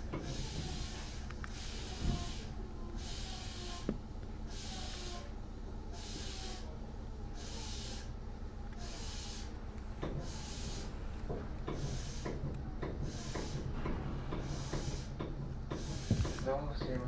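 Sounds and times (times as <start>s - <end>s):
rhythmic hiss: 0.0s - 5.3s
train rumble inside passenger car: 0.0s - 17.0s.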